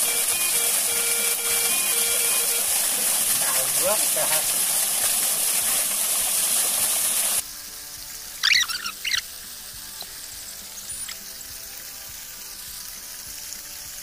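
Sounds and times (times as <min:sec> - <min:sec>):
creek water rushing: 0:00.0 - 0:07.4
warbling bird chirp: 0:08.4 - 0:09.3, 0:10.7 - 0:11.2.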